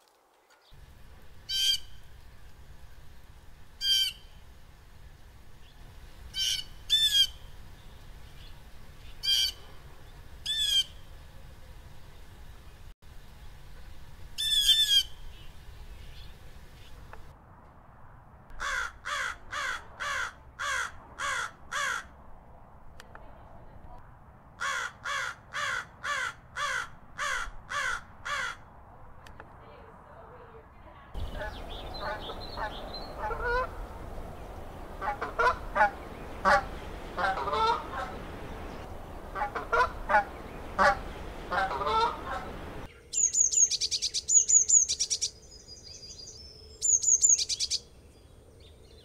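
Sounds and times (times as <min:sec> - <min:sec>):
blue jay harsh calls: 0:01.5 - 0:02.1, 0:03.8 - 0:04.4, 0:06.3 - 0:07.5, 0:09.2 - 0:09.6, 0:10.4 - 0:11.0, 0:14.4 - 0:15.4, 0:18.6 - 0:22.1, 0:24.6 - 0:28.6, 0:31.2 - 0:33.9, 0:35.0 - 0:47.8
crow cawing: 0:18.6 - 0:22.2, 0:24.6 - 0:28.7.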